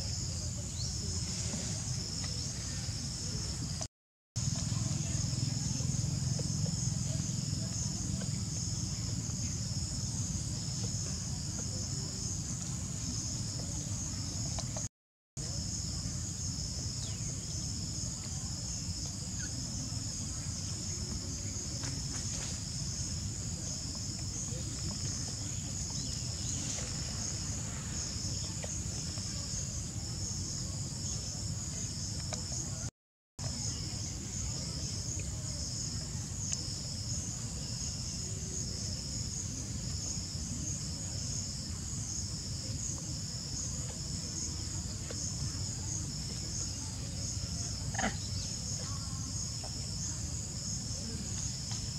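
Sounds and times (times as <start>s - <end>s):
insects trilling: 15.6s - 51.9s.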